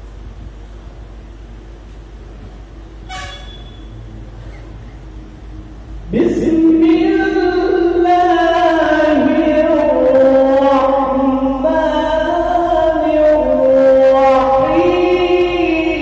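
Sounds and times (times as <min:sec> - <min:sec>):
man reciting melodically: 0:06.1 - 0:16.0.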